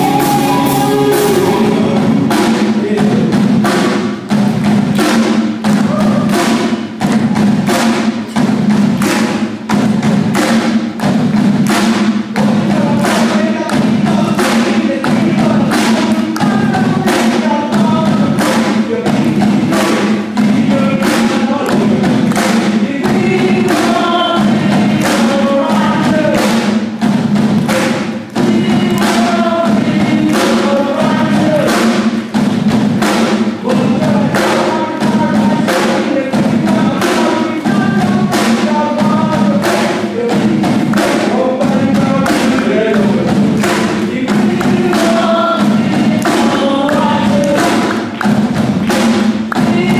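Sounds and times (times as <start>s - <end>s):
electric guitars: 0.0s - 2.4s
keyboards: 0.0s - 3.0s
live rock band playing: 0.0s - 3.0s
lead vocal singing: 0.0s - 4.0s, 12.4s - 27.0s, 27.6s - 32.4s, 33.0s - 49.9s
drum kit beat: 0.0s - 49.9s.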